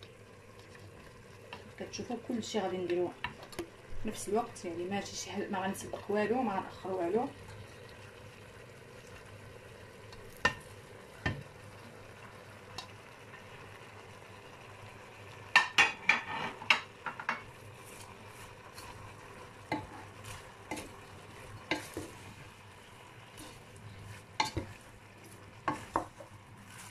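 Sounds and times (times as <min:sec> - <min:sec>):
food sizzling in a frying pan: 0:00.0 - 0:26.9
wooden spoon knocking and scraping pan: 0:15.5 - 0:18.1, 0:19.7 - 0:21.0, 0:21.6 - 0:22.3, 0:23.4 - 0:26.9.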